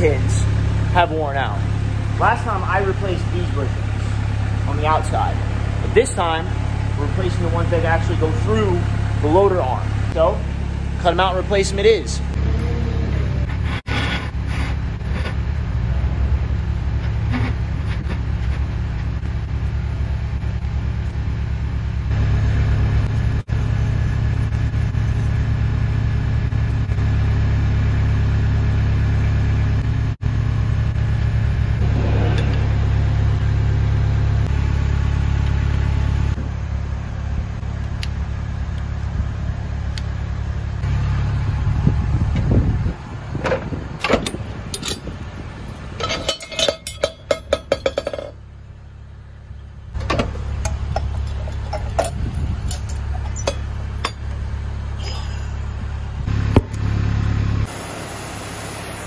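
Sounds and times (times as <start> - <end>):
engine droning: 0.0 - 59.0
metal tools clinking: 44.0 - 48.4, 50.6 - 54.3.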